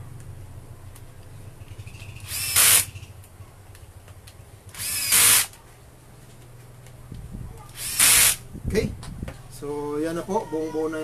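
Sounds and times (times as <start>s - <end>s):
cordless drill whining: 2.2s - 2.9s, 4.7s - 5.5s, 7.8s - 8.4s.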